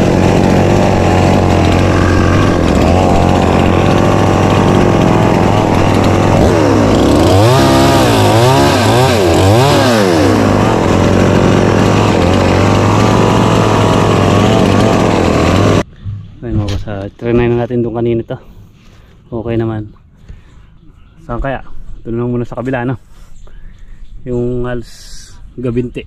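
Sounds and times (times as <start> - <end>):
chainsaw running and revving: 0.0 - 15.8.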